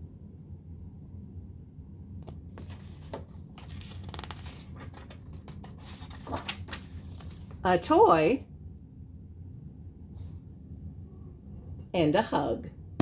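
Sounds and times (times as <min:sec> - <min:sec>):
faint low hum: 0:00.0 - 0:13.0
book pages turning: 0:02.2 - 0:07.6.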